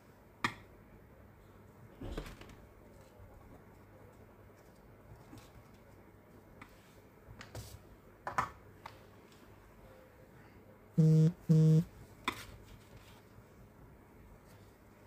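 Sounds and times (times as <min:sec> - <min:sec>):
short electronic beeps: 0:11.0 - 0:11.9.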